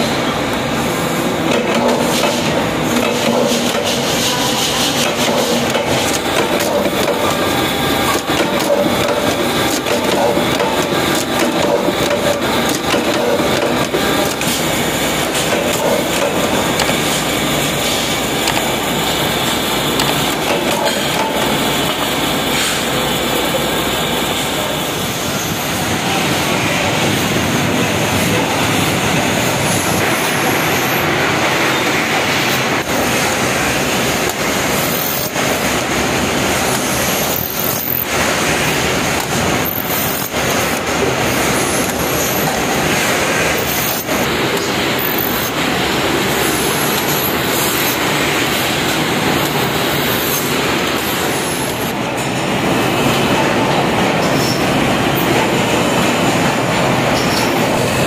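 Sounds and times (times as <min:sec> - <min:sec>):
lathes running: 0:00.8 - 0:25.0, 0:32.3 - 0:52.4.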